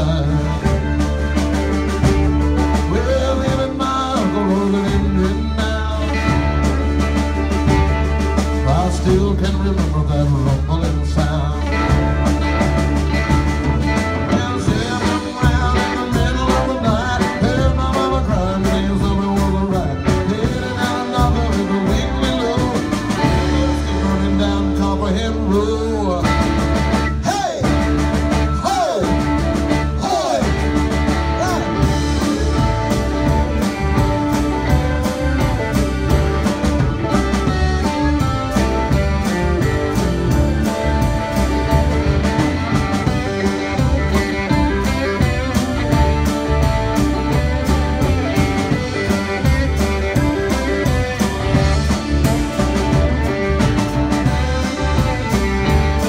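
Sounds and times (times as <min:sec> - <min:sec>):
lead guitar bending notes: 0:00.0 - 0:56.0
live rock band playing: 0:00.0 - 0:56.0.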